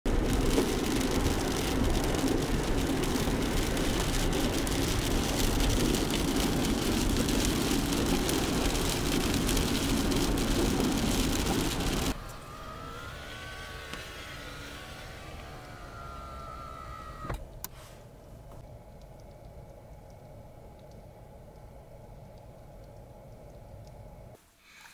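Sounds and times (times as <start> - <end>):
road and tyre noise: 0.0 - 24.4
low engine hum: 0.1 - 24.4
power window motor whine: 10.3 - 17.5.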